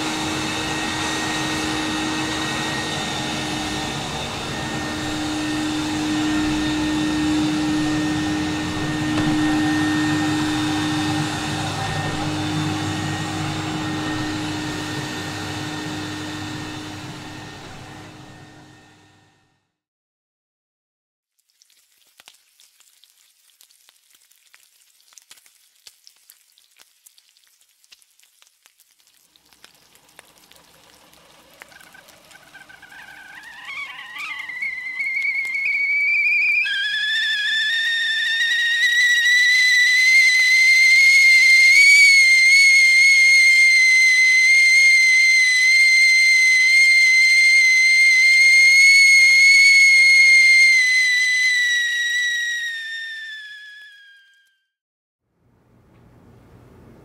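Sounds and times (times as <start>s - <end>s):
kettle whistling: 0.0s - 19.3s, 29.6s - 54.6s
sizzling frying pan: 21.4s - 43.7s.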